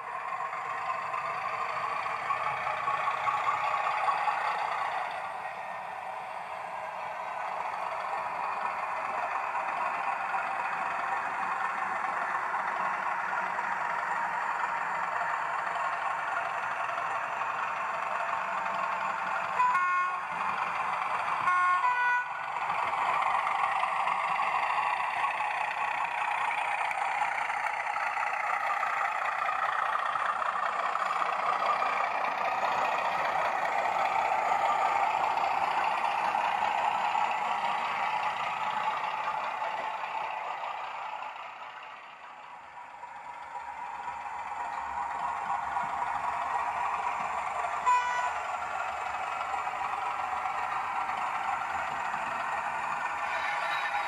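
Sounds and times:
model locomotive diesel engine sound: 0:00.0 - 0:54.0
short horn blasts: 0:47.9 - 0:48.4, 0:53.3 - 0:54.0.

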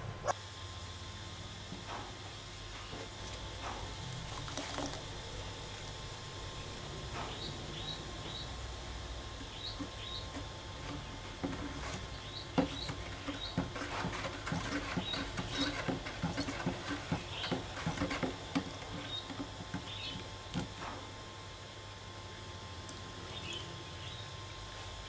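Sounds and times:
water sloshing in plastic jug: 0:03.0 - 0:05.3.

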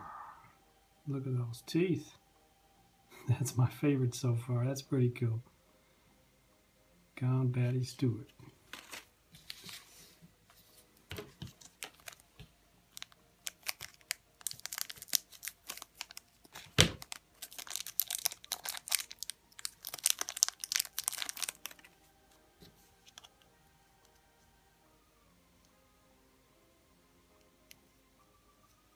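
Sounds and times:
plastic bag crinkling: 0:11.5 - 0:12.2, 0:12.9 - 0:22.0.

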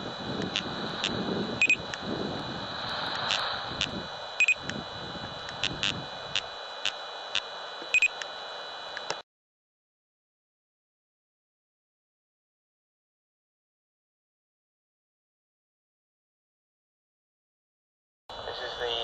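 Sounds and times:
steady high whine: 0:00.0 - 0:09.2, 0:18.3 - 0:19.0
laser speed gun beeping: 0:00.4 - 0:01.9, 0:03.3 - 0:04.7, 0:07.3 - 0:08.2
scattered clicks: 0:00.4 - 0:02.0, 0:05.4 - 0:08.3, 0:08.9 - 0:09.2.

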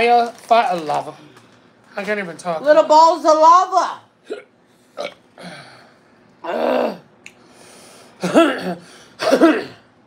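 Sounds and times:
person clearing throat: 0:04.2 - 0:05.7, 0:08.2 - 0:09.9.

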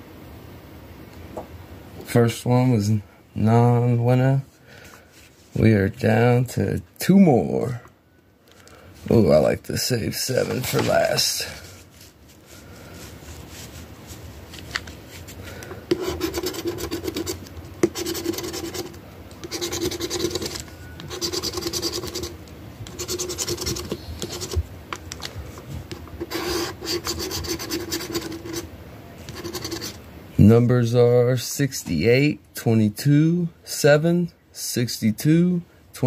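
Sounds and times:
scratching scratch-off ticket: 0:15.9 - 0:24.6, 0:25.9 - 0:30.0.

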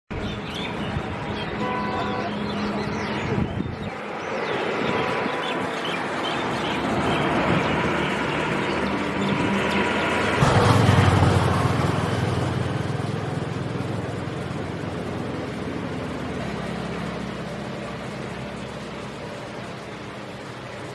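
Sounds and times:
tyres and engine rushing: 0:00.1 - 0:20.9
low engine hum: 0:06.4 - 0:20.9.

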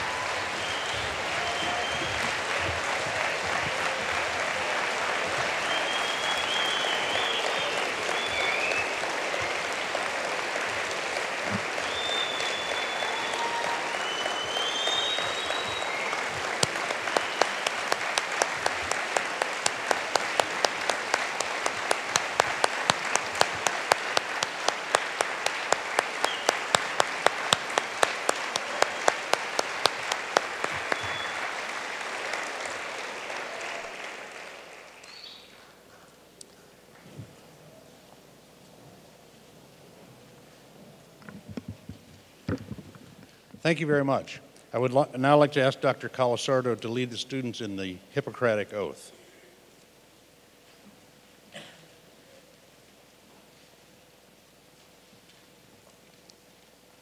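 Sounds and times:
high whoops: 0:00.0 - 0:04.5, 0:11.8 - 0:17.9
sharp even claps: 0:00.0 - 0:35.1
large audience applauding: 0:00.0 - 0:37.2.

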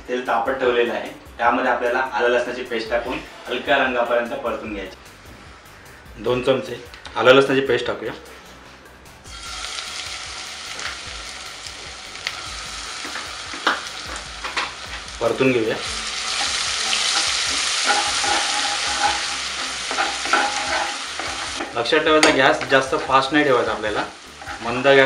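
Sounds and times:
paste sizzling in hot oil: 0:09.3 - 0:25.0
spatula scraping pan: 0:16.3 - 0:25.0.

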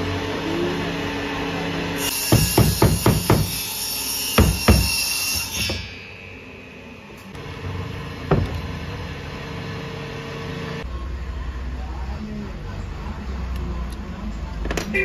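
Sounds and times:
knocks of metal and wood: 0:02.1 - 0:03.6, 0:04.3 - 0:06.1, 0:08.3 - 0:08.8.

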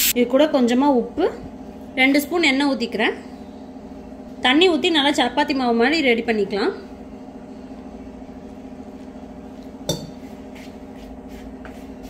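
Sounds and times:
steady low hum: 0:00.0 - 0:12.0
hand mixing flour in a bowl: 0:08.5 - 0:12.0.

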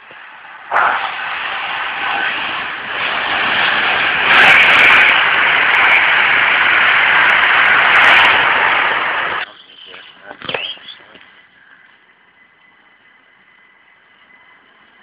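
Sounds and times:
train rushing past: 0:00.1 - 0:10.0.

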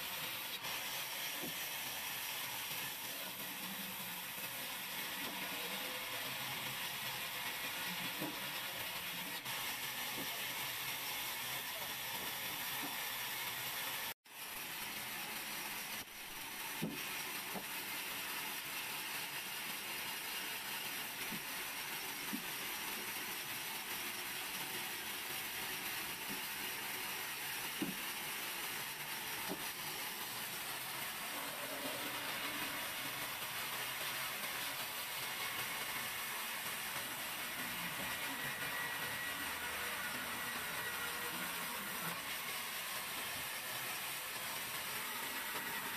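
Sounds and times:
band saw cutting wood: 0:34.4 - 0:45.9.

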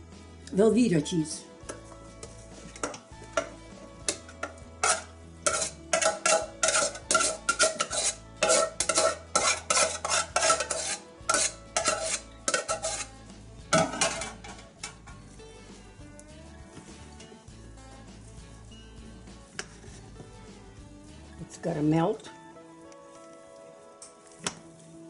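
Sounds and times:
metal spoon scraping a pot: 0:01.6 - 0:15.2, 0:19.6 - 0:20.1.

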